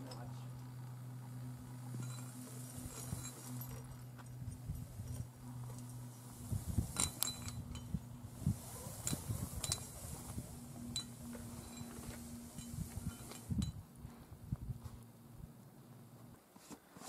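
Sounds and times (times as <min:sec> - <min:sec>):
metal climbing gear clinking: 0:01.8 - 0:08.1, 0:08.8 - 0:13.8.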